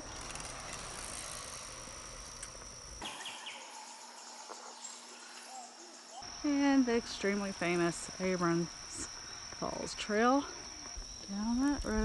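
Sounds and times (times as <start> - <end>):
insects singing: 0.0 - 12.0
outdoor background: 0.0 - 12.0.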